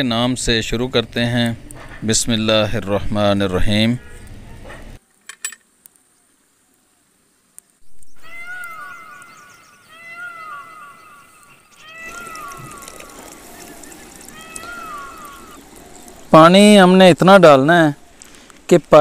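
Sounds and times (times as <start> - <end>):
faint outdoor background: 0.0 - 19.0
animal mewing calls: 8.2 - 16.2.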